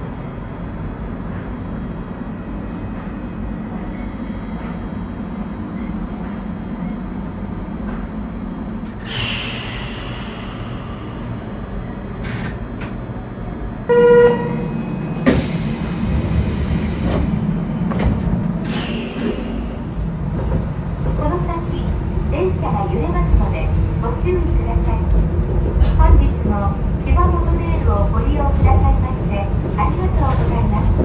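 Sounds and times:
train low hum: 0.0 - 31.0
train horn toot: 13.9 - 14.7.

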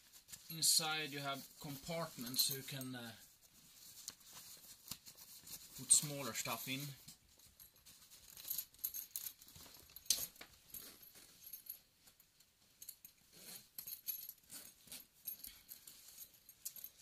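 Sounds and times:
fabric bag rustling: 0.0 - 11.8
zipper pulls clicking and jingling: 7.4 - 11.7, 12.8 - 17.0.

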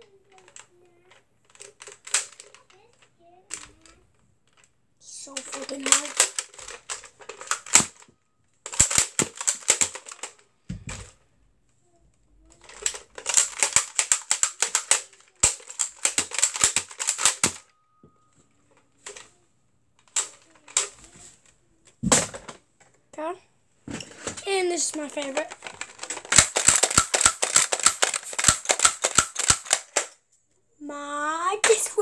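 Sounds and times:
toy dart blaster clicking: 5.4 - 8.0, 8.7 - 10.3, 12.6 - 17.7, 25.2 - 30.2.

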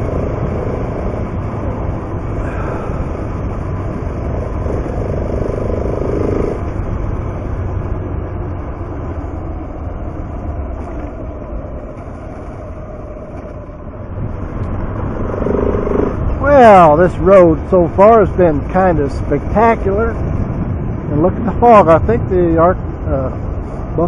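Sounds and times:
motorcycle engine running: 0.0 - 16.9
wind and road noise: 0.0 - 24.0.

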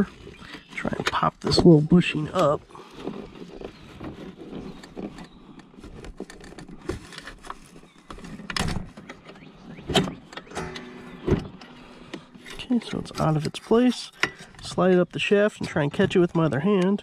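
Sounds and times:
short creak: 2.4 - 14.7
screwdriver scraping plastic: 2.9 - 9.3.

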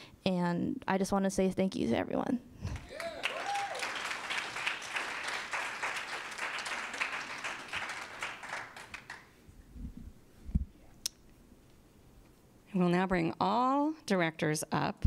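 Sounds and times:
audience applauding: 2.8 - 9.3.

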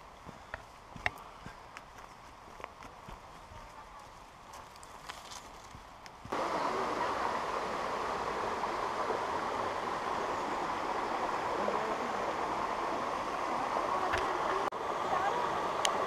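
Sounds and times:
river rushing over rocks: 6.3 - 16.0.

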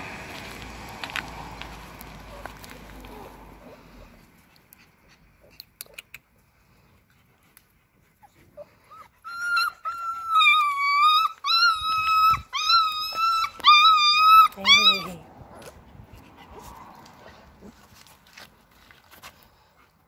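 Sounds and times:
puppy whining: 8.2 - 15.7.

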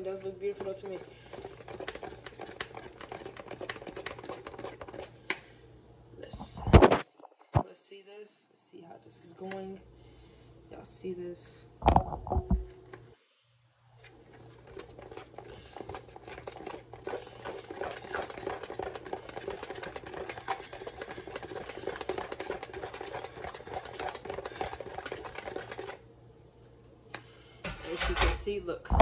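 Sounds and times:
spoon scraping batter in bowl: 0.0 - 5.3, 14.0 - 26.0.

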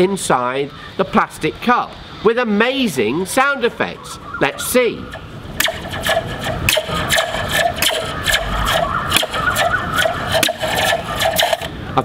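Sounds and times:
spring metallic twangs and zaps: 5.0 - 11.8.

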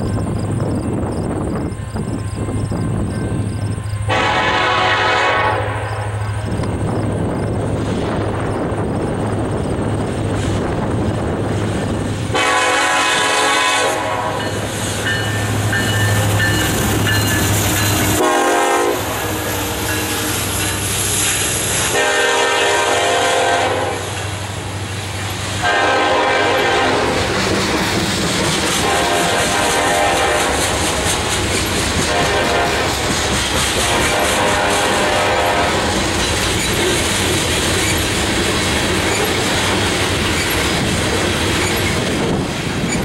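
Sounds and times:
diesel locomotives running: 0.0 - 43.0
train air horn blasts: 4.0 - 6.4, 12.3 - 15.2, 18.0 - 20.6, 21.5 - 24.2, 25.6 - 27.4, 28.7 - 31.1, 32.0 - 33.2, 33.8 - 36.1
train wheels clacking on rails: 6.1 - 23.1, 23.8 - 43.0.

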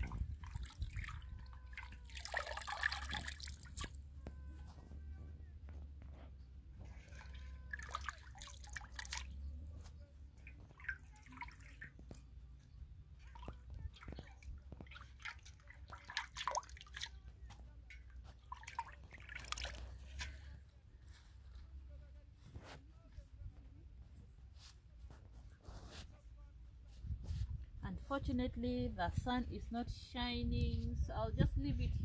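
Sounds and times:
greens swishing in water: 0.0 - 4.0, 7.0 - 9.4, 13.2 - 17.2, 18.4 - 20.1
water splashing and dripping: 0.0 - 4.0, 7.0 - 9.4, 10.4 - 12.2, 13.2 - 20.0.

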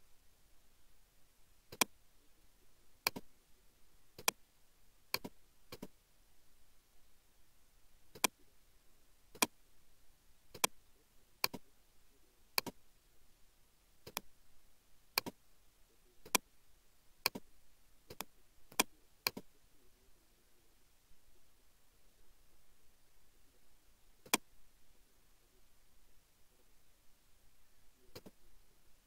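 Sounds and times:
computer mouse clicking: 1.7 - 1.9, 3.0 - 3.3, 4.2 - 4.4, 5.1 - 5.9, 8.1 - 8.4, 10.5 - 10.8, 11.4 - 11.7, 12.6 - 12.8, 14.0 - 14.3, 15.2 - 15.4, 16.2 - 16.4, 17.2 - 17.5, 18.1 - 19.5, 24.2 - 24.5, 28.1 - 28.4.

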